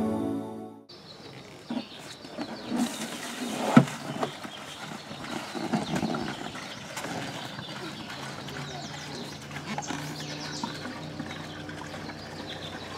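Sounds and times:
plastic can scraping: 0:01.4 - 0:08.0.

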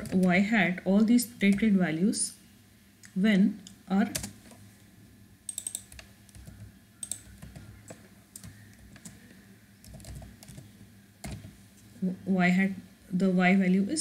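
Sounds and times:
keyboard keystrokes: 0:05.5 - 0:11.5.

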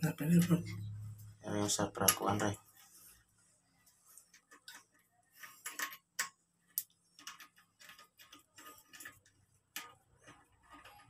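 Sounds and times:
metal wrench clicking and scraping: 0:04.3 - 0:11.0.

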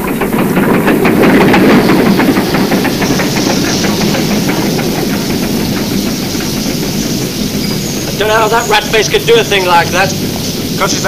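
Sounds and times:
steam train clattering past: 0:00.0 - 0:11.0
hiss of steam: 0:00.1 - 0:11.0.

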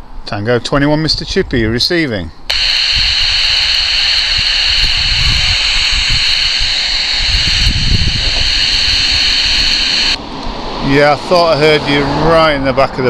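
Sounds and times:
radio static hiss: 0:02.5 - 0:10.2.

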